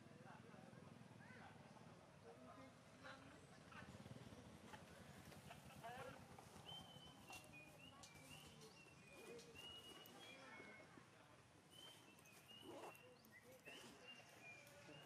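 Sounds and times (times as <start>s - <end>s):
faint low voices: 0.0s - 15.0s.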